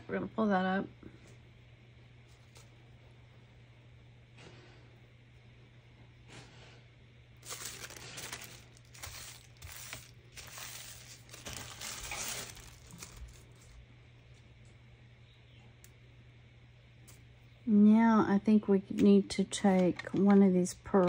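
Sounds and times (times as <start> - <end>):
paper or plastic crinkling: 7.4 - 13.8.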